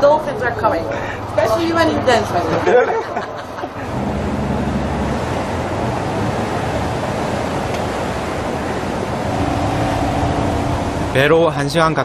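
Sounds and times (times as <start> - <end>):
water and wind rushing: 3.7 - 12.0
low boat engine hum: 3.8 - 11.6.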